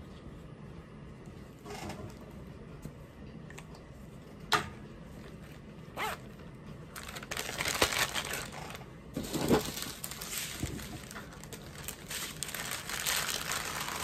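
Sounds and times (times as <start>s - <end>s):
plastic bags crinkling: 6.9s - 14.0s.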